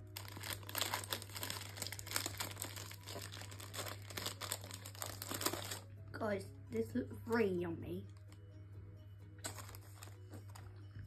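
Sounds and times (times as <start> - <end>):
plastic wrapper crinkling and tearing: 0.0 - 5.9, 9.4 - 10.6.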